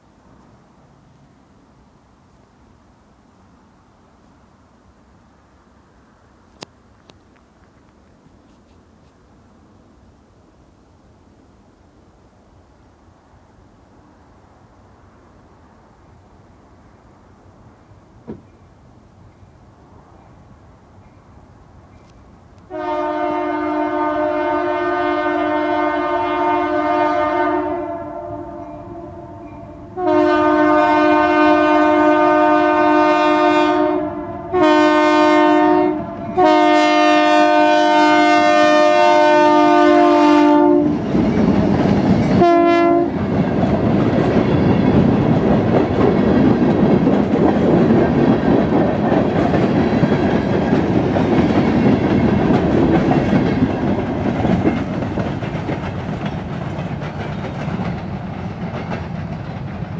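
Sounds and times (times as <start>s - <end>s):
train passing: 0.0s - 59.9s
locomotive air horn blasts: 22.7s - 41.0s, 42.4s - 43.2s
wheels clacking over rail joints: 40.9s - 42.4s, 43.1s - 59.9s.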